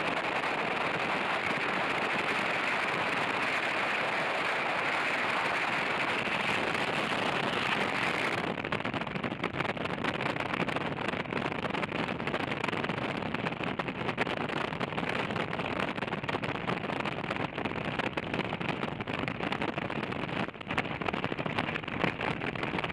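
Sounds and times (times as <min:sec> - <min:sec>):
wind and road rush: 0:00.0 - 0:22.9
microphone crackling: 0:05.4 - 0:22.9.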